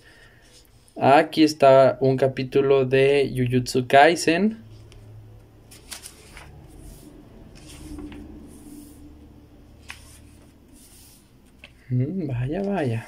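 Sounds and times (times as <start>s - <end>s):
paper pages rustling: 4.7s - 11.8s.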